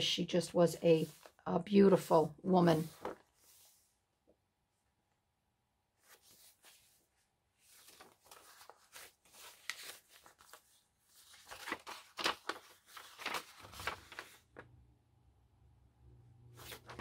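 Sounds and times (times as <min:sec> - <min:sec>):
paper pages rustling: 0:00.9 - 0:01.4, 0:02.7 - 0:03.8, 0:06.0 - 0:14.7, 0:16.6 - 0:17.0.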